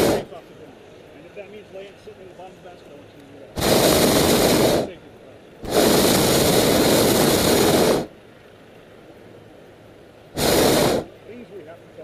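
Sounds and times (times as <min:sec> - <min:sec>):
propane burner blast: 0:00.0 - 0:01.1, 0:03.4 - 0:08.2, 0:10.2 - 0:11.6.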